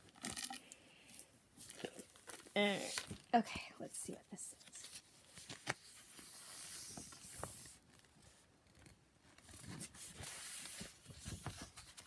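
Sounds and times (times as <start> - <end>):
paper poster rustling: 4.5 - 12.0.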